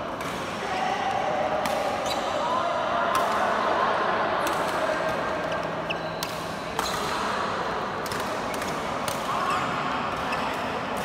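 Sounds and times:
echoing sports hall hum: 0.0 - 11.0
rackets hitting shuttlecocks: 8.0 - 9.4.

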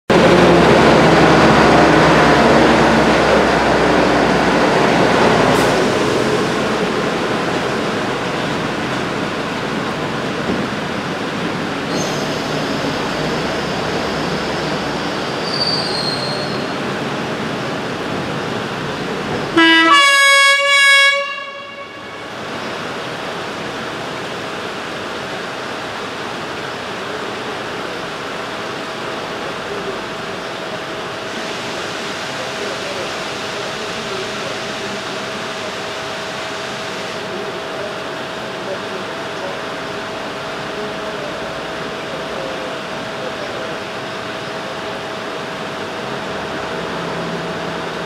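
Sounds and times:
diesel locomotive running: 0.1 - 48.0
locomotive horn: 19.5 - 22.4.

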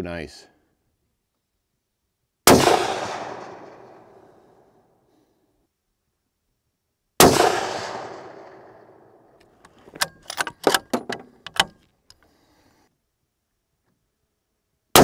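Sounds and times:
rifle shot: 2.4 - 4.7, 7.2 - 9.3
rifle bolt clicking: 9.5 - 12.2.

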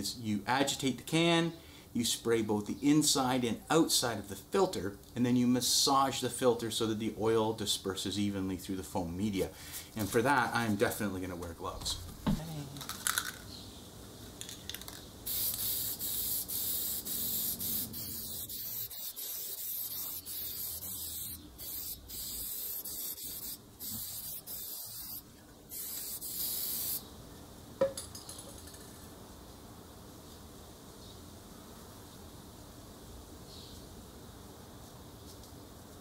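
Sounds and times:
aerosol can hissing: 15.3 - 27.0.

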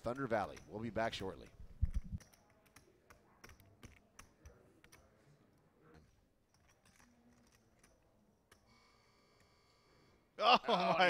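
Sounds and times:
faint irregular clicks: 0.0 - 5.2, 6.0 - 9.6.

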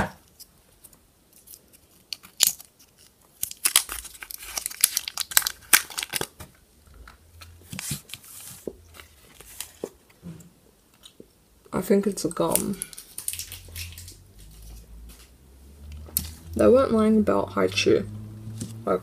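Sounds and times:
candy wrapper crinkling and tearing: 1.3 - 6.5, 12.4 - 14.8
paper wrapper rustling: 1.3 - 6.6, 7.4 - 10.2, 12.4 - 15.4.

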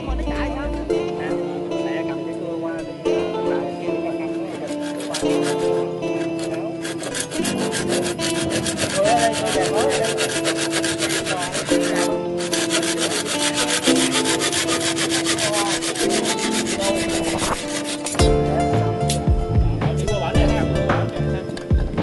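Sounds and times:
hand saw cutting bamboo: 3.9 - 19.3.

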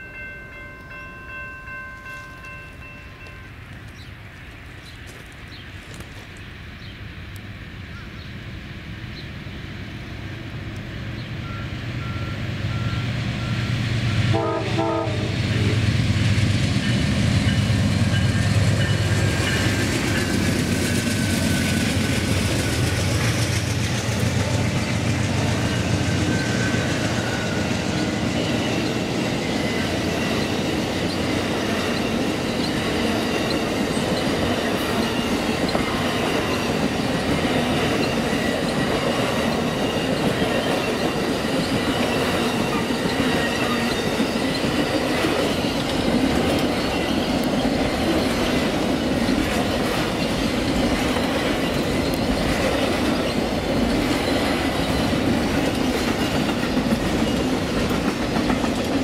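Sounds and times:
diesel locomotive engines: 0.0 - 59.0
train wheels clicking on rails: 10.6 - 59.0
train horn: 12.0 - 16.1.

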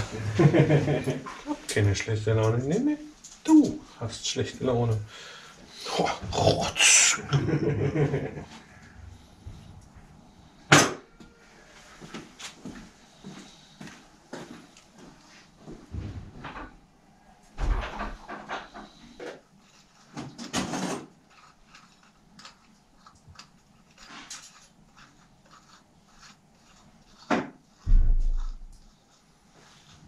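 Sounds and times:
heavy thump: 27.8 - 28.8.

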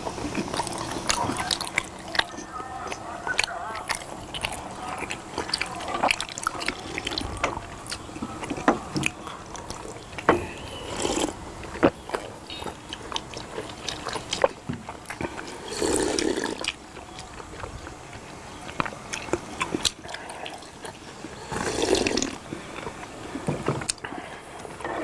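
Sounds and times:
chewing rice cakes: 0.0 - 25.0
mouth smacks and clicks: 0.3 - 21.0
loud slurp: 10.6 - 12.0, 13.4 - 16.8, 19.7 - 22.8.

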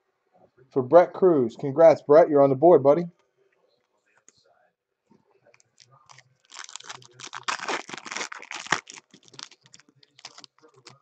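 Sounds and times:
foil wrapper crinkling and tearing: 5.6 - 11.0.

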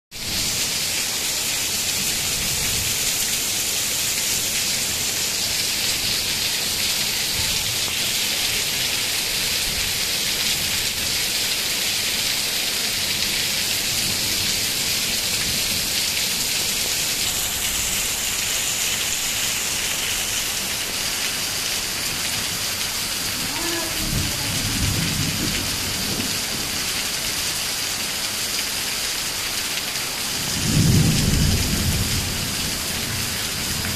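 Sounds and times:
heavy rain falling: 0.1 - 33.9
thunder rumbling: 23.3 - 26.7, 30.4 - 33.9.

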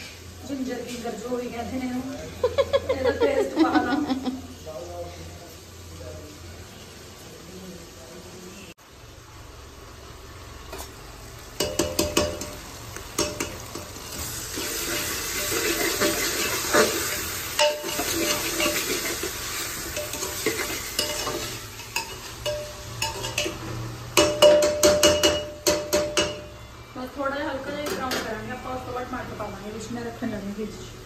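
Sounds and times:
vegetables sizzling in oil: 0.0 - 31.0
metal ladle scraping pot: 13.4 - 25.4.

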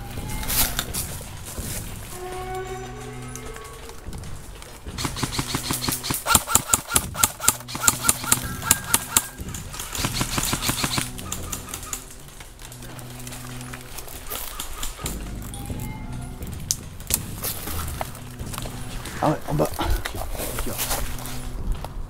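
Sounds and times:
background music: 0.0 - 22.0
airsoft rifle rapid fire: 5.0 - 12.2.

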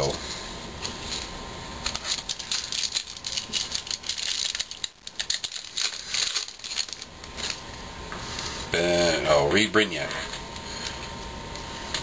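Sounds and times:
foil wrapper crinkling and tearing: 1.9 - 7.7.

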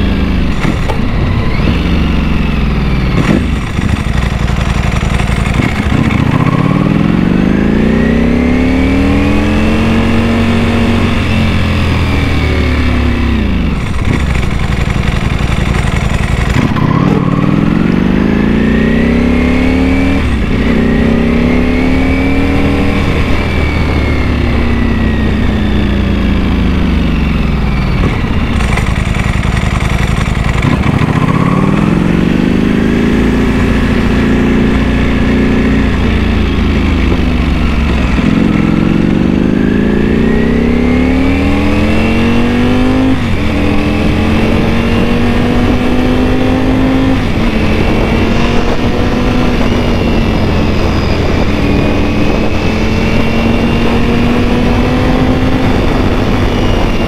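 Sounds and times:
motorcycle engine revving and upshifting: 0.0 - 57.0.

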